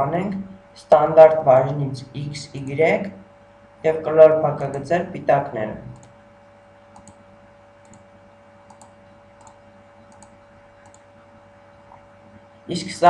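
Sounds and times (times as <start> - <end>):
faint electrical hum: 0.0 - 13.0
computer mouse clicking: 6.0 - 6.2, 6.9 - 7.2, 7.8 - 8.1, 8.7 - 11.2.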